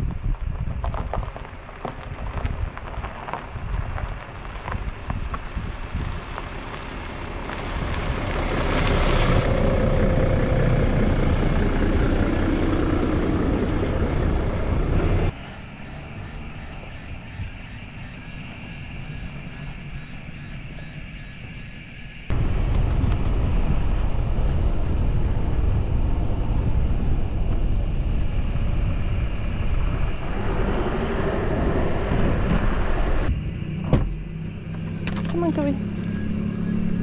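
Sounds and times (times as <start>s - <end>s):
boat engine passing: 6.5s - 17.3s, 24.3s - 37.0s.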